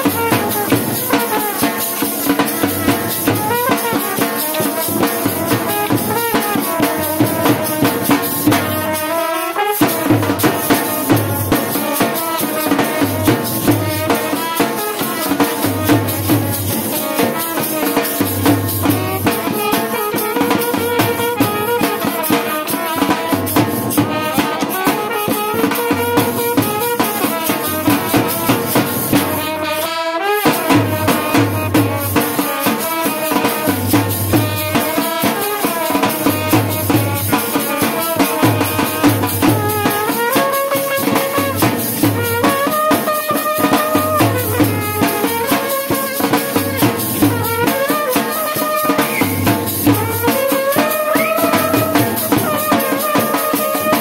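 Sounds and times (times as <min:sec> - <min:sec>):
drum beat: 0:00.0 - 0:54.0
folk dance melody: 0:00.0 - 0:54.0.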